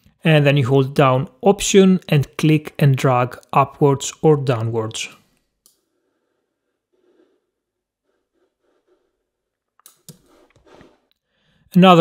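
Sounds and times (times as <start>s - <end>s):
soft breath: 5.8s - 9.4s, 10.3s - 11.7s.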